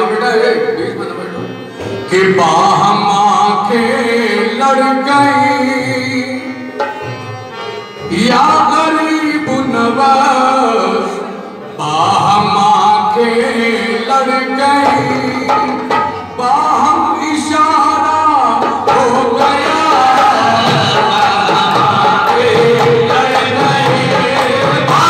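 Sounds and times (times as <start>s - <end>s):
hand drums: 14.7s - 17.0s, 18.5s - 25.0s
devotional group singing: 18.9s - 25.0s.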